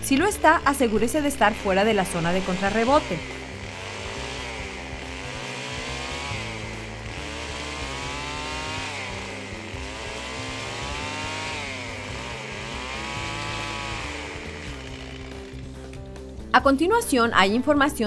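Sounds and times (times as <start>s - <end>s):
chainsaw cutting sapling: 0.0s - 16.4s
chainsaw engine revving: 0.0s - 16.4s.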